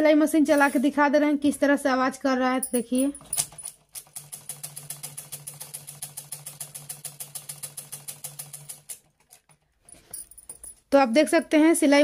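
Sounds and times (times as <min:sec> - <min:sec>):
sewing machine clicking: 0:02.9 - 0:09.8.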